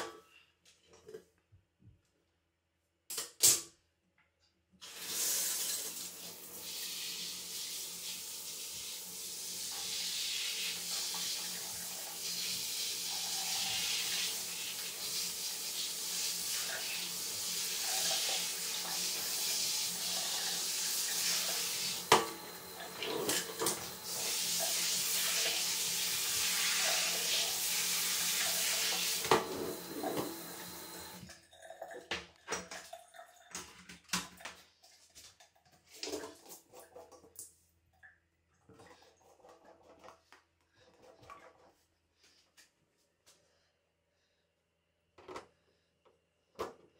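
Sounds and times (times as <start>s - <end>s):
shower sprayer hissing: 4.9s - 31.2s.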